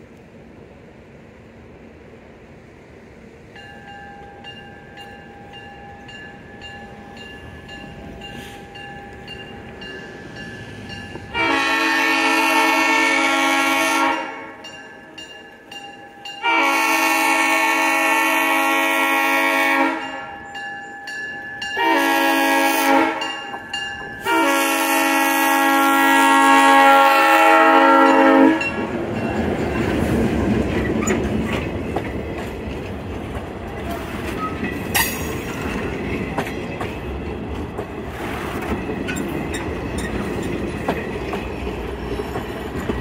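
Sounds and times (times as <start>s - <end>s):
locomotive engine and wheels rumble: 0.0s - 43.0s
locomotive air horn blasts: 11.3s - 14.7s, 16.4s - 20.3s, 21.8s - 23.4s, 24.2s - 28.8s.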